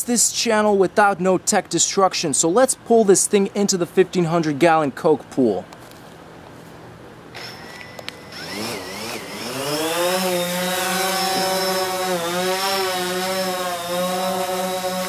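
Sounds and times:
drone propellers buzzing: 7.4s - 15.0s.

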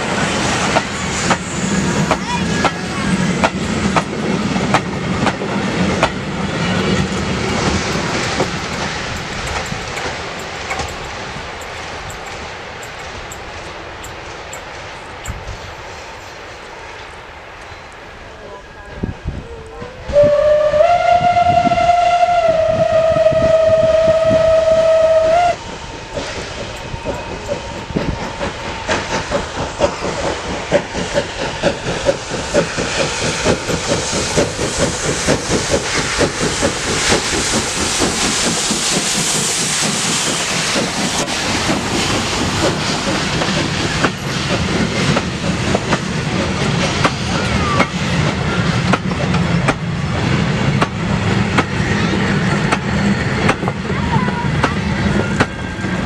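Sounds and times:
steam locomotive whistle: 20.0s - 25.7s.

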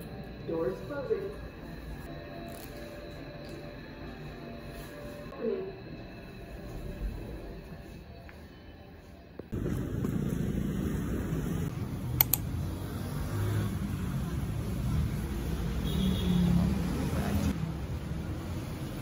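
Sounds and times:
passing cars rumbling: 9.6s - 19.0s.

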